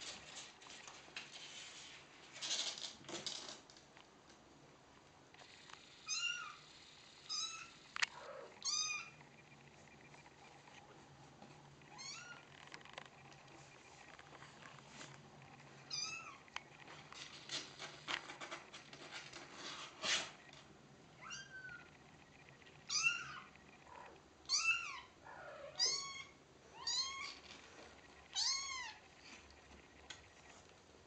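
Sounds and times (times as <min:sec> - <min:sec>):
scratching and rustling on cardboard: 0:00.0 - 0:02.8, 0:16.8 - 0:20.5.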